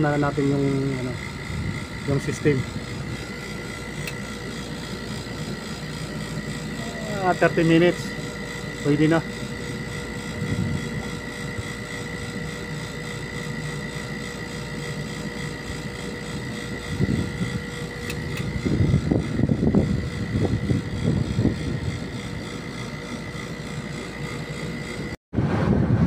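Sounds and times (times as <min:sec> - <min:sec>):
high steady tone: 0:00.0 - 0:12.7
air-conditioning machinery hum: 0:00.0 - 0:26.0
wind rumbling on microphone: 0:01.1 - 0:03.3, 0:10.3 - 0:11.0, 0:16.8 - 0:22.4, 0:25.4 - 0:26.0.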